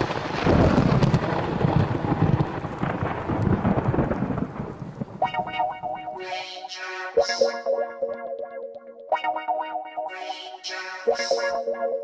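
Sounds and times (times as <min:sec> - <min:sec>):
deep rolling thunder: 0:00.0 - 0:05.2.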